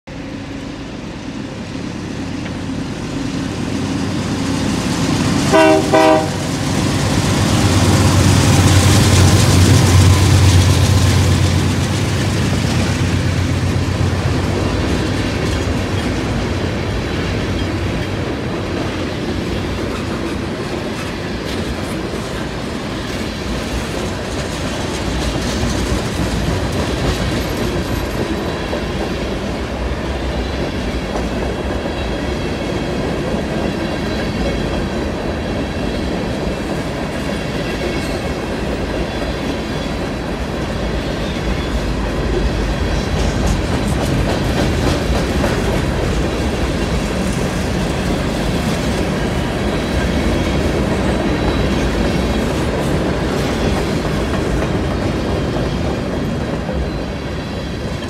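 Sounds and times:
train wheels clacking on rail joints: 2.4s - 58.0s
locomotive horn blasts: 5.5s - 6.5s.

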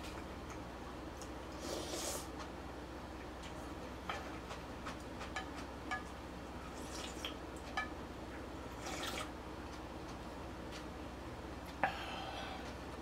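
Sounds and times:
wet eating sounds: 6.7s - 7.4s.

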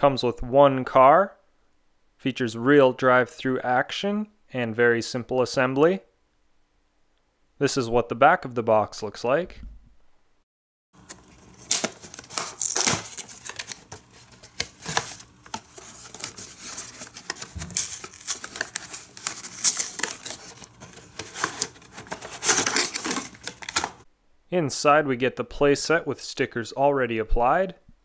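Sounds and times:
cardboard and plastic rustling: 11.0s - 24.1s.

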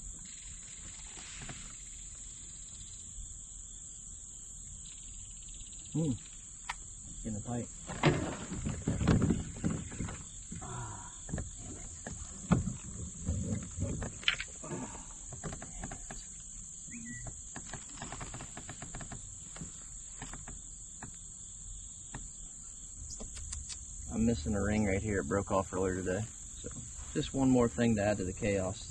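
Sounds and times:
crickets chirring: 0.0s - 28.9s
light quick clicks: 23.1s - 23.9s.

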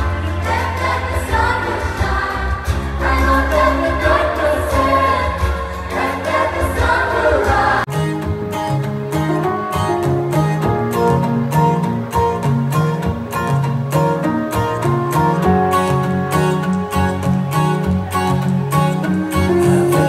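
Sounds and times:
live pop song with choir: 0.0s - 8.4s, 18.7s - 20.0s
guitar-led instrumental music: 7.8s - 20.0s.

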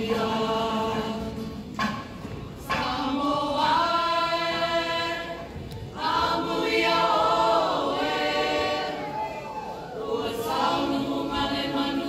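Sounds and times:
group singing unaccompanied: 0.0s - 12.0s.

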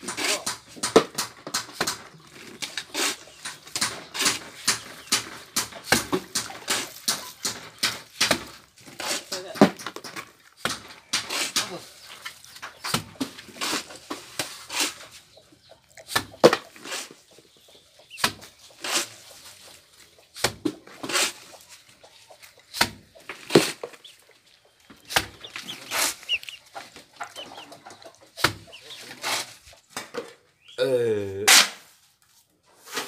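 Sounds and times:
trowel scraping mortar on wall: 1.7s - 12.0s, 12.8s - 15.2s, 16.1s - 17.2s, 18.8s - 19.3s, 20.4s - 21.6s, 25.0s - 29.7s.

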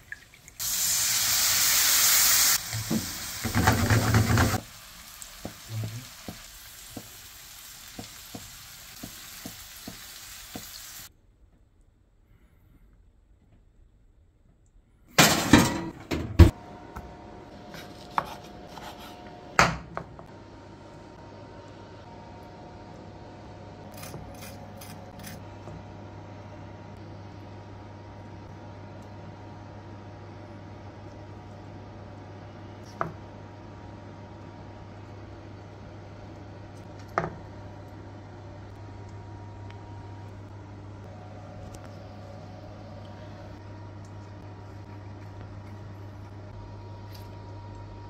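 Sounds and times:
steady low hum: 16.4s - 48.0s.

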